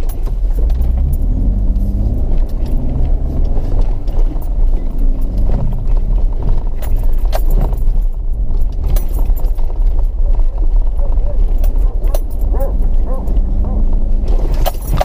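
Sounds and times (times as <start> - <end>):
vehicle engine and tyres rumbling: 0.0 - 15.0
loose rattling: 11.5 - 15.0.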